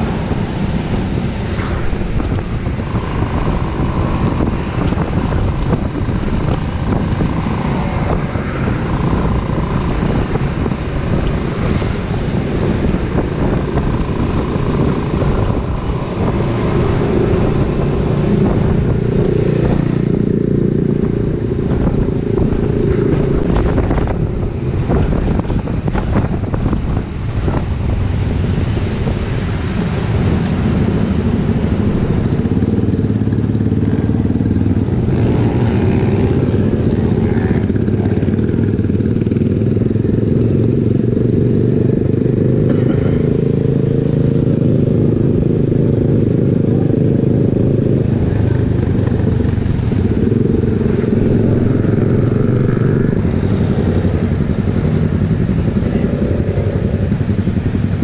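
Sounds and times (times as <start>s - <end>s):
wind rumble on microphone: 0.0s - 58.0s
scooter engine running: 29.2s - 58.0s.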